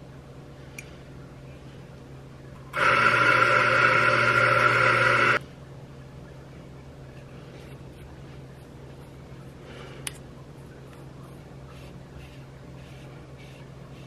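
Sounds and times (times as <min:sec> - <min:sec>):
electric coffee grinder grinding: 0:02.7 - 0:05.4.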